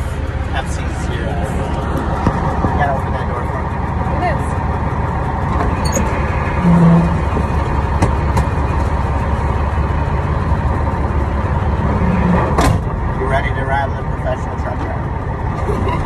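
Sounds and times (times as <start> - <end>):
truck engine and road rumble: 0.0 - 16.0.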